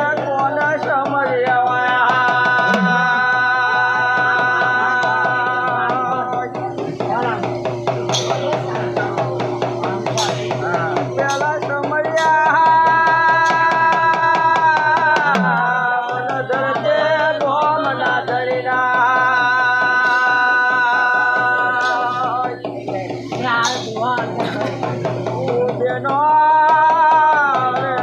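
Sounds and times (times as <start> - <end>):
hand drum beat: 0.0 - 28.0
person singing long notes: 1.7 - 6.4, 8.1 - 28.0.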